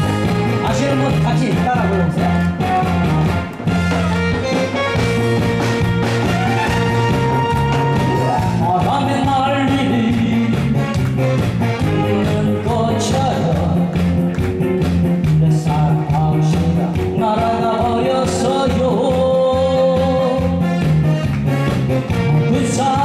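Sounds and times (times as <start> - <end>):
man singing: 0.0 - 3.3, 8.2 - 14.2, 15.2 - 20.8, 22.3 - 23.0
upbeat backing track: 0.0 - 23.0.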